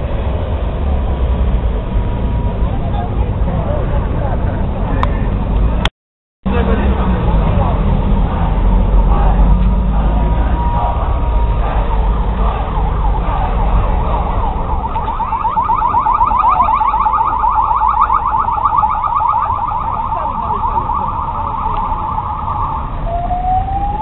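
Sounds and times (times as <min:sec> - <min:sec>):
street traffic rumble: 0:00.0 - 0:24.0
police siren yelping: 0:09.0 - 0:24.0.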